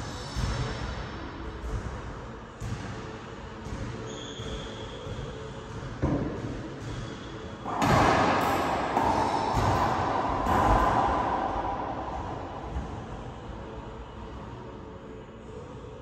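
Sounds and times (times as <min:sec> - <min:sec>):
loud steady rushing noise: 0:00.0 - 0:16.0
ball bouncing on wooden floor: 0:07.7 - 0:13.0.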